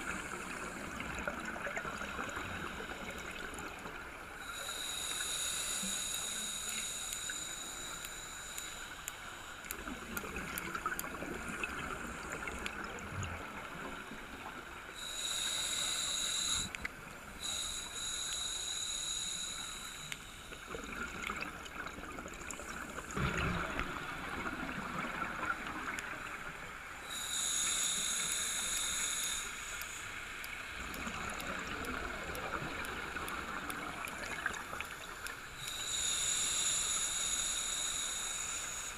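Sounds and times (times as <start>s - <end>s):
regulator inhalation hissing: 2.3s - 10.0s, 14.9s - 20.8s, 27.0s - 31.5s, 34.0s - 38.9s
bubbles gurgling: 20.7s - 26.4s.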